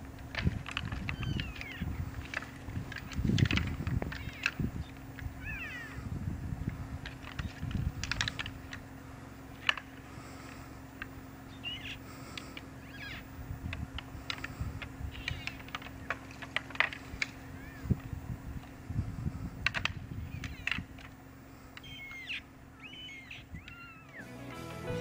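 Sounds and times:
short high rising calls: 23.7s - 25.0s.

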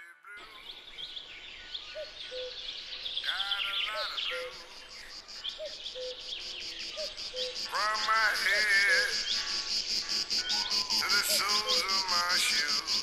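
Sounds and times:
birds chirping: 0.3s - 13.0s
pulsing insect trill: 3.4s - 13.0s.

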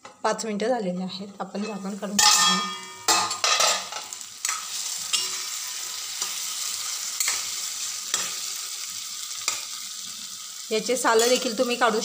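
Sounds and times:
food sizzling in a pan: 1.4s - 12.0s
metal spoon scraping a pan: 1.5s - 8.7s, 9.3s - 9.8s, 11.1s - 12.0s.

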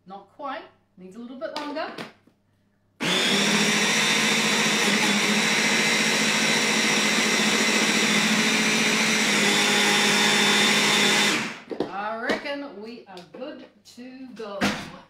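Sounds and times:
food processor running: 3.0s - 11.7s.

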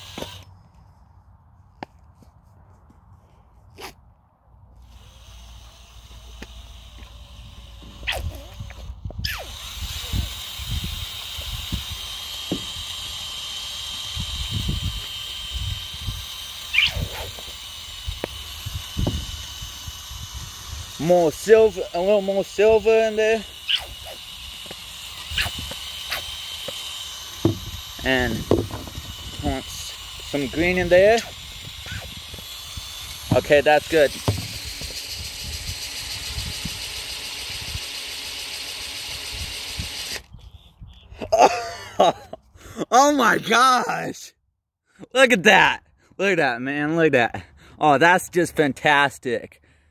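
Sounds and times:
cordless drill whining: 0.0s - 1.0s, 4.7s - 41.0s
wind buffeting microphone: 18.6s - 20.9s.

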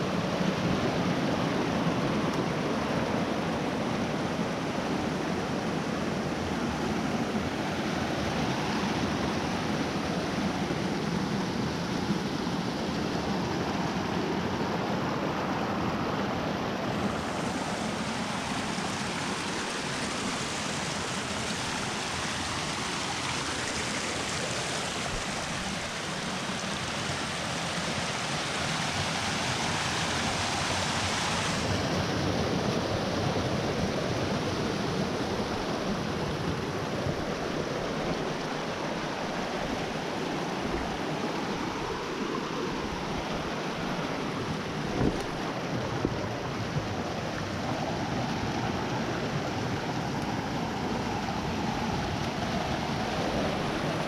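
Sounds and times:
stream splashing over rocks: 0.0s - 54.0s.

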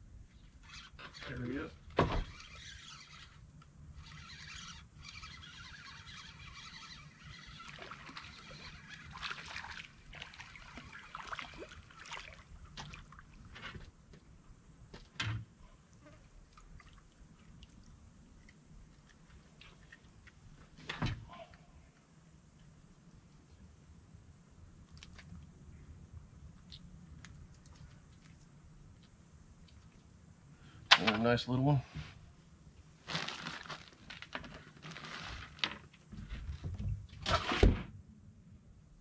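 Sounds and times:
fish splashing in water: 6.0s - 13.4s.

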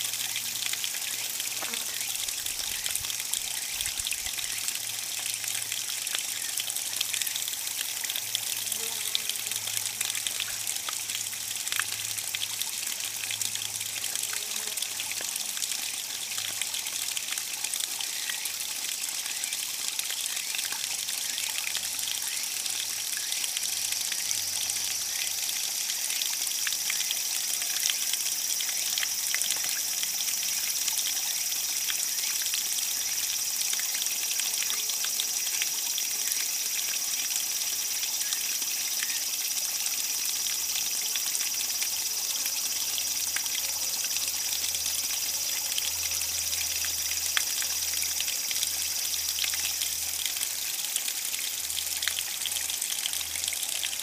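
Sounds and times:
cicada droning: 0.0s - 9.7s, 22.2s - 54.0s
waterfall splashing into pool: 0.0s - 54.0s.

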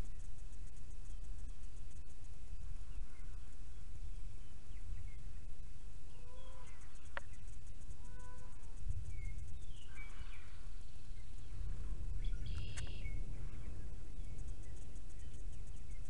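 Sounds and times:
low outdoor rumble: 0.0s - 16.0s
small birds chirping: 0.0s - 16.0s
sharp click: 12.5s - 13.0s.

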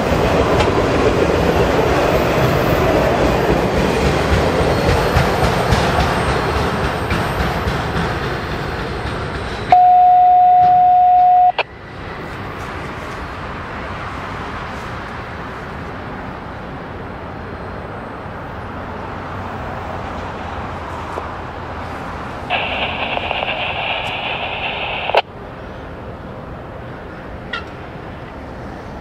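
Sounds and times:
freight train wheels rumbling on rail: 0.0s - 29.0s
loud steady electronic beep: 9.7s - 11.6s.

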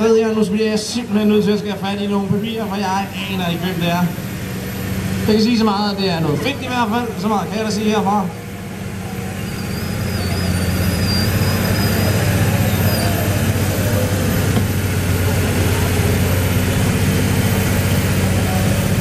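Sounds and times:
tractor diesel engine under load: 0.0s - 19.0s
faint high whistle: 9.2s - 13.5s.

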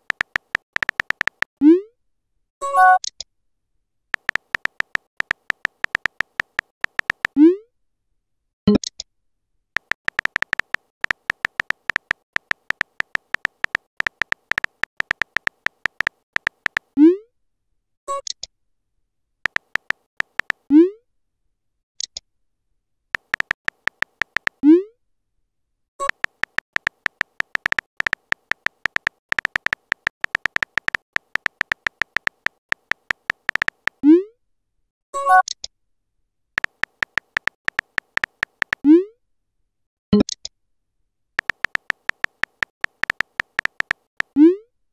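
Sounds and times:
phone keyboard tap clicks: 0.0s - 1.5s, 4.2s - 7.4s, 9.8s - 16.9s, 19.5s - 20.6s, 23.2s - 24.6s, 26.0s - 34.0s, 36.6s - 38.8s, 41.4s - 44.3s.

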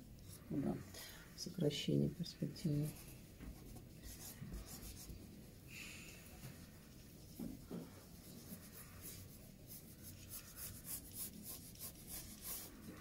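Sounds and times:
pencil scratching on paper: 2.7s - 5.2s, 8.4s - 13.0s.

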